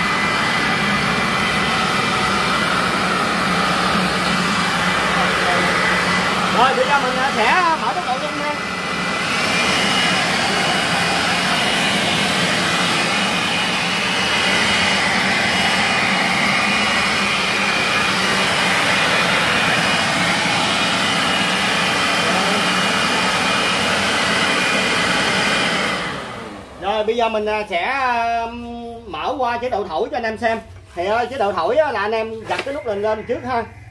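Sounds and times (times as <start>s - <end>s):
motor whine: 0.0s - 27.0s
leaf vacuum air rushing: 0.0s - 28.5s.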